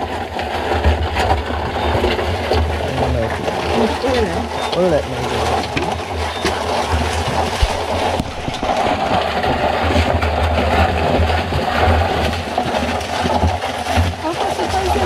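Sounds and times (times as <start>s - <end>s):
crabs clicking: 0.0s - 15.0s
steady low rumble: 2.4s - 12.6s.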